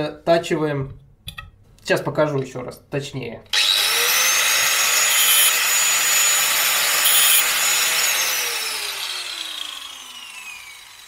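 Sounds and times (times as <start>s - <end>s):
angle grinder whine: 3.5s - 11.0s.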